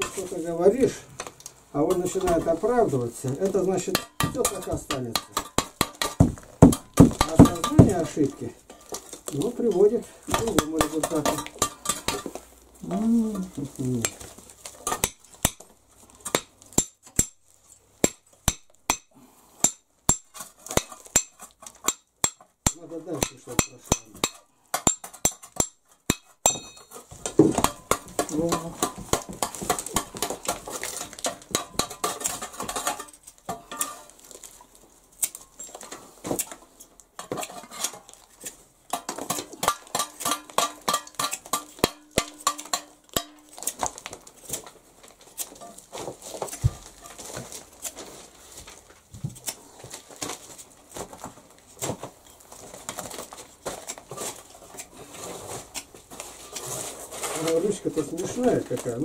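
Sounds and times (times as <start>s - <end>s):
blade chopping wood: 3.9s - 8.3s.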